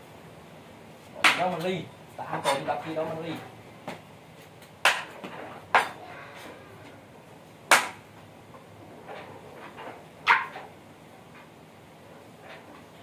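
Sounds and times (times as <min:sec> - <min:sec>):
sharp knocks: 0:07.7 - 0:08.0.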